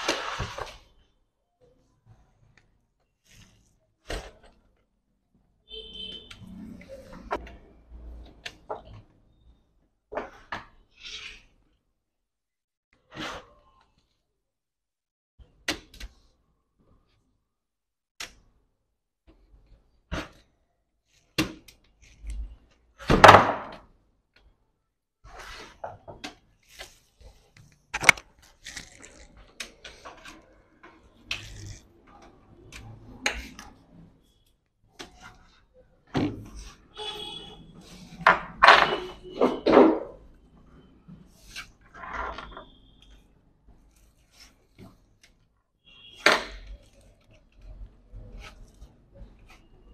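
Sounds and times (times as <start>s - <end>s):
plastic parts rattling and scraping: 25.4s - 34.2s.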